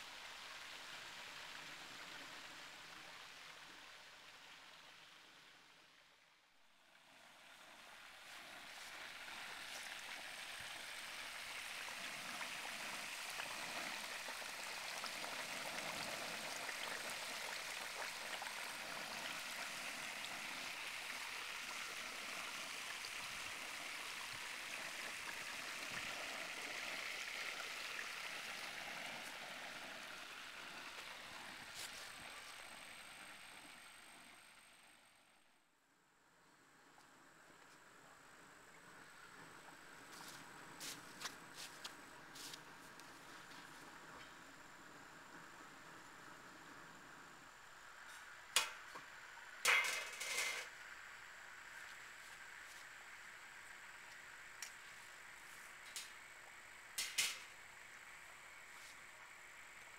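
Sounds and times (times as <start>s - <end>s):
hot oil bubbling and sizzling: 6.8s - 35.0s, 43.8s - 59.9s.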